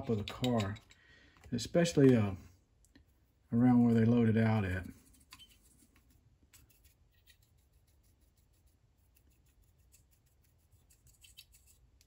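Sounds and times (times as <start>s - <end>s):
paintbrush scratching: 3.0s - 12.0s.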